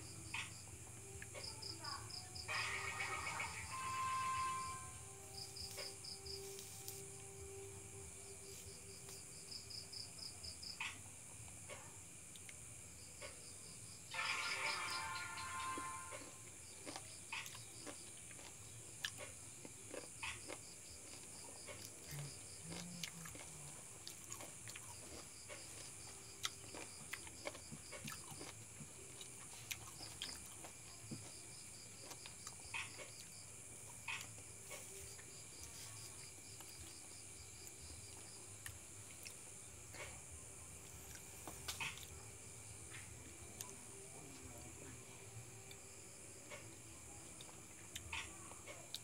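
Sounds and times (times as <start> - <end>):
high insect trill: 0.0 - 49.0
person chewing: 16.1 - 33.3.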